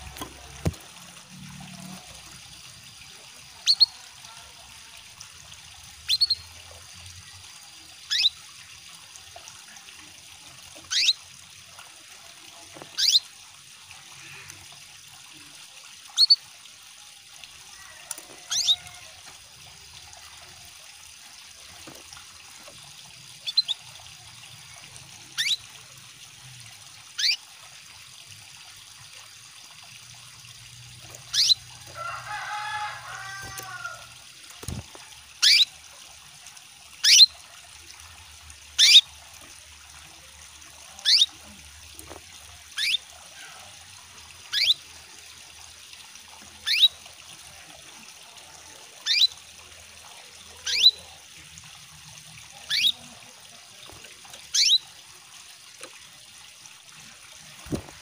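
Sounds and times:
running water trickling: 0.0 - 58.0
canary chirping: 3.6 - 3.9, 6.1 - 6.5, 8.1 - 8.4, 10.9 - 11.2, 13.0 - 13.2, 16.2 - 16.4, 18.5 - 18.9, 23.4 - 23.8, 25.4 - 25.6, 27.2 - 27.4, 31.3 - 31.6, 35.4 - 35.7, 37.0 - 37.3, 38.8 - 39.0, 41.0 - 41.3, 42.8 - 43.0, 44.5 - 44.8, 46.6 - 46.9, 49.0 - 49.3, 50.6 - 51.0, 52.7 - 53.0, 54.5 - 54.8
low bird warbling: 18.4 - 19.0, 31.3 - 31.6, 52.7 - 53.0.

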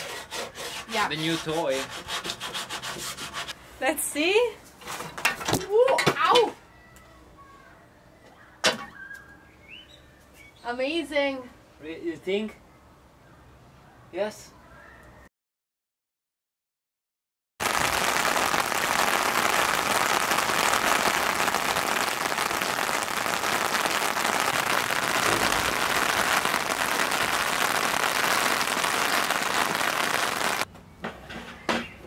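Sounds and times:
rain falling on wet asphalt: 17.6 - 30.7.

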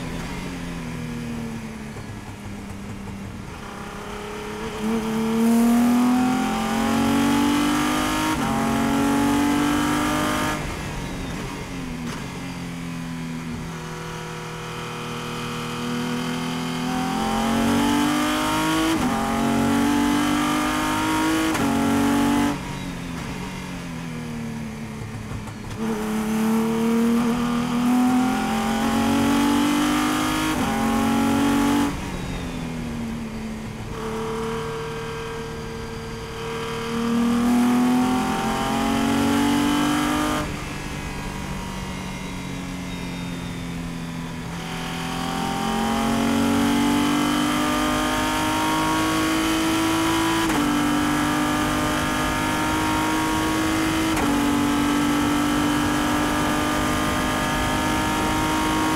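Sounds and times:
race car engine revving: 33.9 - 40.6, 44.5 - 58.9.

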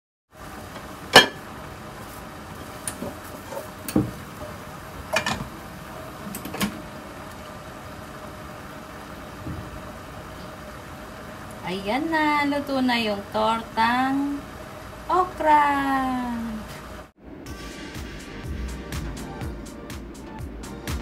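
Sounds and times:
kitchen hum: 0.3 - 17.2
frying pan and plate clanking: 0.7 - 1.6, 2.6 - 5.6.

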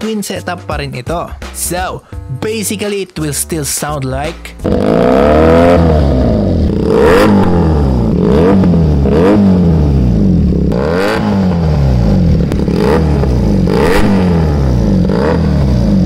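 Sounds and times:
motorcycle engine revving: 4.6 - 16.0.

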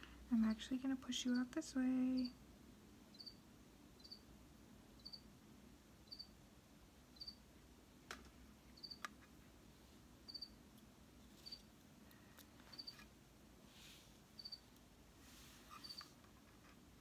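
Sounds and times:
cricket chirping: 3.1 - 3.4, 4.0 - 4.3, 5.0 - 5.3, 6.0 - 6.4, 7.1 - 7.4, 8.8 - 9.0, 10.3 - 10.6, 11.4 - 11.7, 12.8 - 13.0, 14.4 - 14.7, 15.8 - 16.1.

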